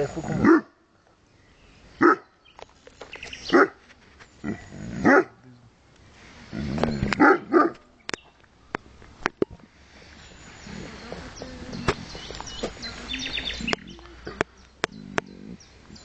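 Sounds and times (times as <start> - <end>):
dog barking: 0.4 - 0.7, 2.0 - 2.2, 3.5 - 3.8, 5.0 - 5.4, 7.2 - 7.8.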